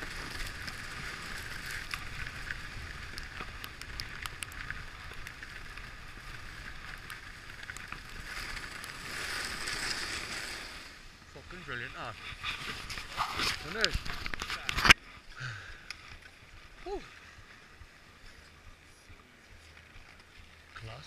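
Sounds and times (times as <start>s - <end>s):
skis scraping over snow: 0.0s - 15.2s, 16.0s - 21.0s
light ticks: 1.8s - 5.9s, 15.8s - 16.4s.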